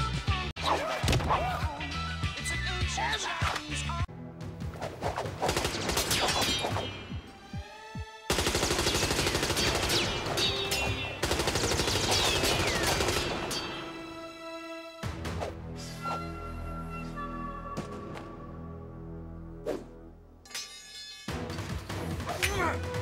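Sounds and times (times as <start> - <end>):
rapid handgun gunfire: 8.3 - 10.6, 11.2 - 13.4.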